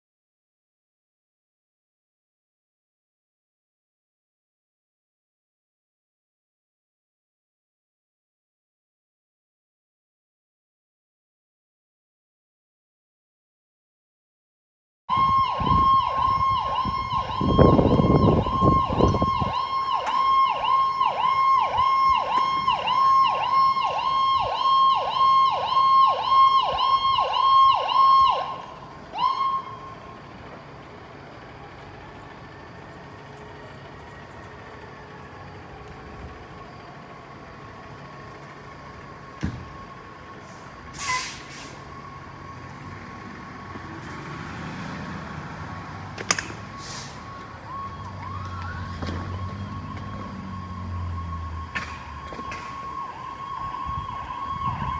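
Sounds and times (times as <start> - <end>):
electronic siren yelping: 15.1 - 30.1, 47.2 - 54.9
truck noise: 15.1 - 54.9
air brake hiss: 40.4 - 41.9, 46.7 - 47.4.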